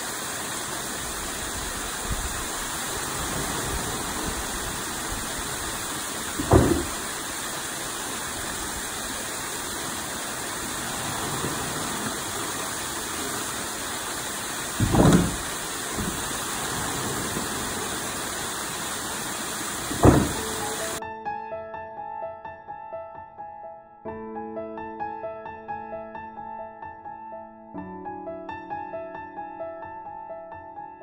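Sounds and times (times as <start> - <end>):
water running into stream: 0.0 - 21.0.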